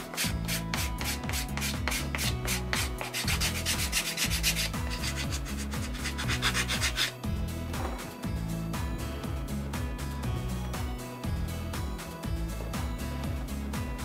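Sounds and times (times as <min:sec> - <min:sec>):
file scraping leather edge: 0:00.0 - 0:07.2.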